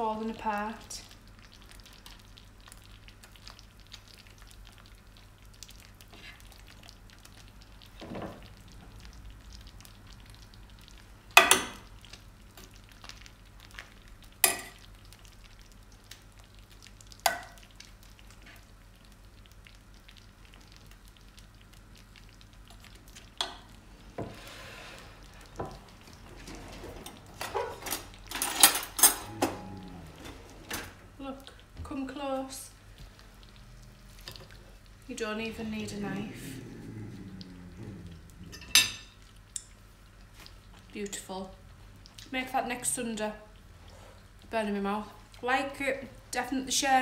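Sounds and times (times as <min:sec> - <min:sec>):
cutlery drawer opening: 0:26.3 - 0:31.0
metal cutlery rattling: 0:27.5 - 0:29.3.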